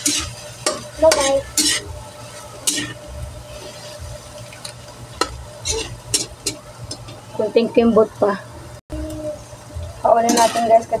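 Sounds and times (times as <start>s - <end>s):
metal spatula scraping a wok: 0.0s - 4.1s, 5.2s - 7.0s, 10.2s - 10.8s.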